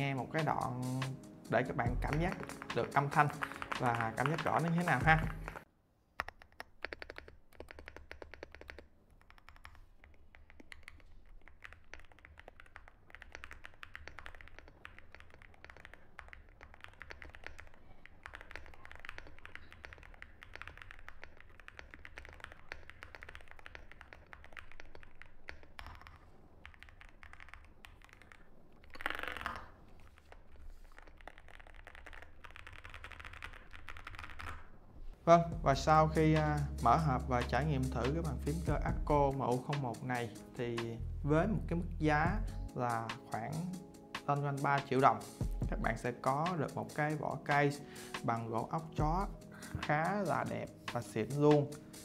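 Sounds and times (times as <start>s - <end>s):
keyboard keystroke clacks: 0.0s - 28.4s.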